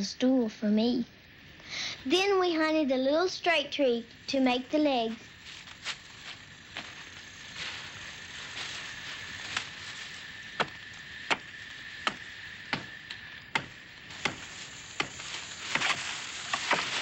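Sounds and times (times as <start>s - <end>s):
hatchet chopping tree trunk: 10.6s - 16.9s.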